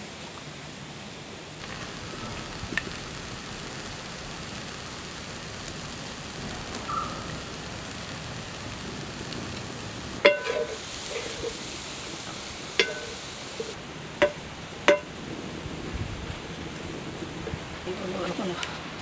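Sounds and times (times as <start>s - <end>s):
steady hiss: 0.0s - 19.0s
spatula clinking on metal pot: 10.2s - 10.8s, 12.8s - 13.2s, 14.2s - 15.1s.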